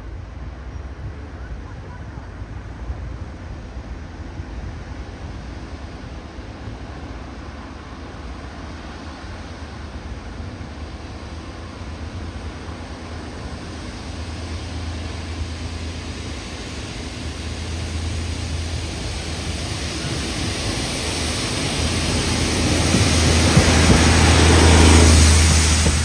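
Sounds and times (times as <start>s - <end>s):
diesel engine hum: 0.0s - 26.0s
wheel and rail noise: 5.7s - 26.0s.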